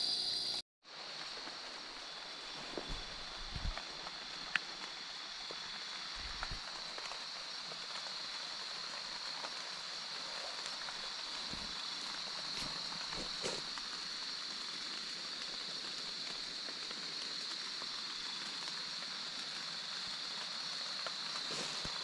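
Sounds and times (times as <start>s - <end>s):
even hiss: 0.0s - 22.0s
high-pitched insect chorus: 0.0s - 22.0s
faint scattered ticks: 2.8s - 22.0s.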